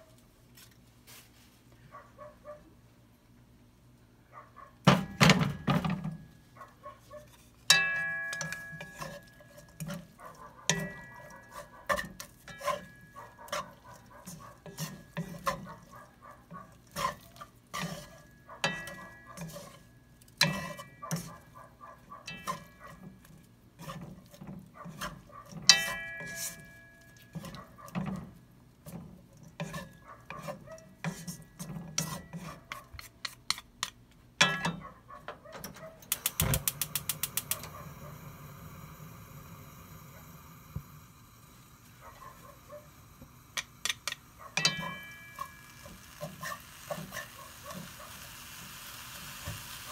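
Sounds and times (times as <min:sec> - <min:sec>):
wooden utensils scraping a wok: 0:07.0 - 0:34.6, 0:43.1 - 0:49.9.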